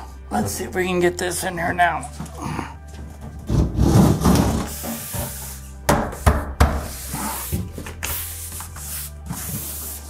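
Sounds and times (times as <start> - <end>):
sharp knocks of panel: 5.9 - 6.9.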